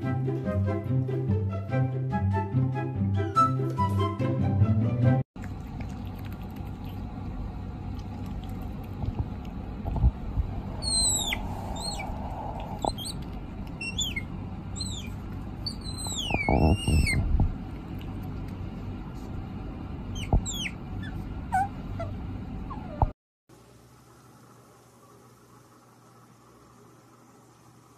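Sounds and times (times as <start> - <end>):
otter squeaking: 10.6 - 17.4, 20.1 - 23.1.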